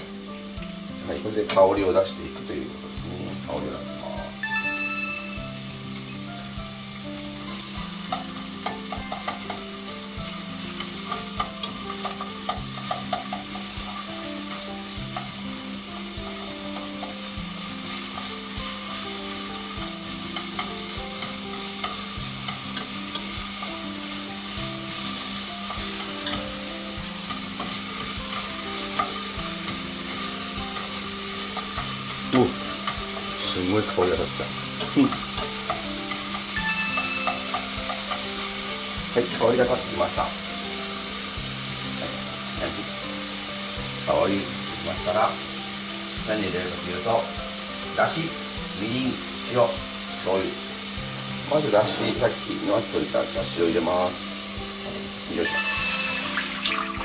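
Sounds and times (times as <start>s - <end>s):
ginger and garlic sizzling in oil: 0.0s - 57.0s
chopsticks stirring: 27.2s - 40.2s.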